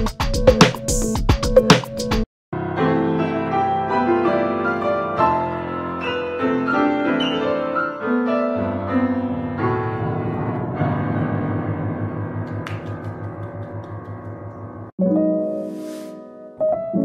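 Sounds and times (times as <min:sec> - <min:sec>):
grand piano run of notes: 0:02.6 - 0:15.6.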